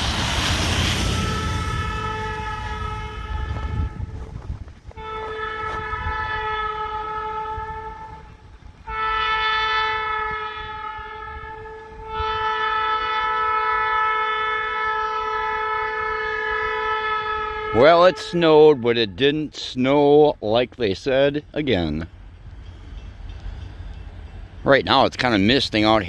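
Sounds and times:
locomotive horn blasts: 0:00.6 - 0:19.4.

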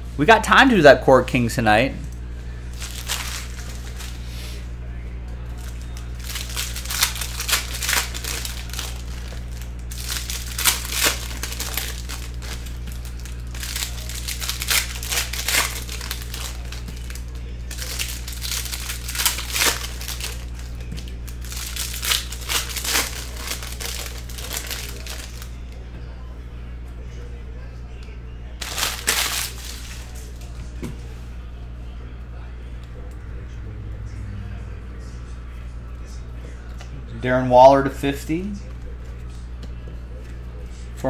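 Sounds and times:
trading cards swishing and crinkling: 0:02.2 - 0:25.8, 0:28.6 - 0:31.1.

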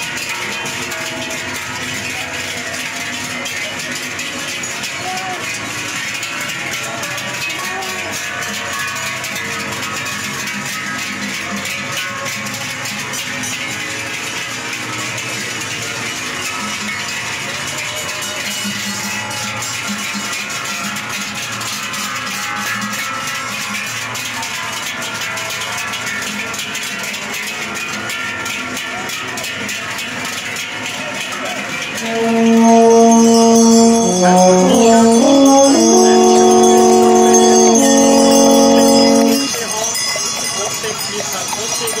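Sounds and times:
cowbells clanging: 0:00.0 - 0:42.0
music of held chords: 0:31.8 - 0:40.8.

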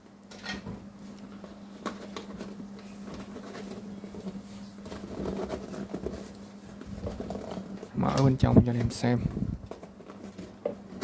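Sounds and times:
steady low hum: 0:00.0 - 0:11.0
cardboard flaps tapping and rustling: 0:01.3 - 0:11.0.

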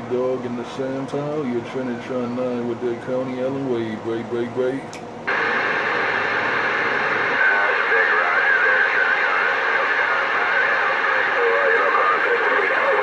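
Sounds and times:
radio static hiss: 0:05.2 - 0:13.0
garbled radio voices: 0:05.3 - 0:13.0.

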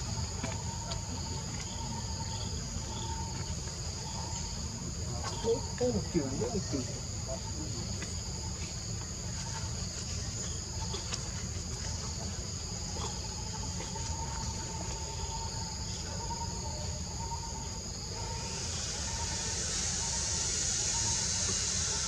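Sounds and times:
shrill insect drone: 0:04.0 - 0:07.7, 0:15.1 - 0:22.0.

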